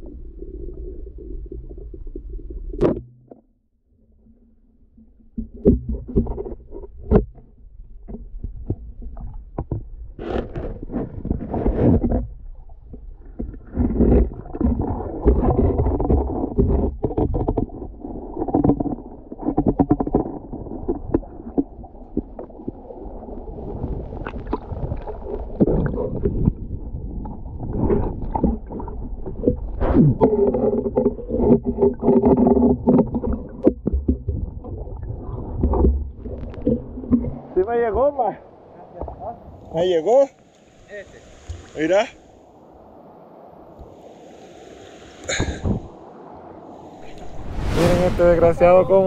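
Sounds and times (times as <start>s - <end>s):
low rumble of moving water: 0.0s - 49.0s
sharp underwater clicks and knocks: 5.3s - 22.5s, 27.2s - 34.9s, 35.6s - 37.5s
rush of water: 9.1s - 49.0s
gurgling bubbles: 13.2s - 37.6s
muffled underwater knocks: 29.4s - 34.8s.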